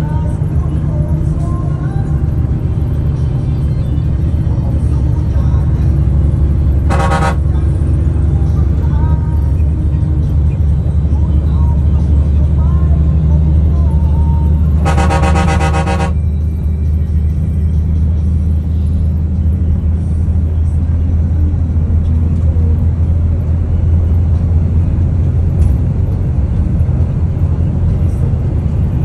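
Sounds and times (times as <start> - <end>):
coach engine and tyres rumble: 0.0 - 29.0
vehicle horn: 6.8 - 7.8, 14.6 - 16.4.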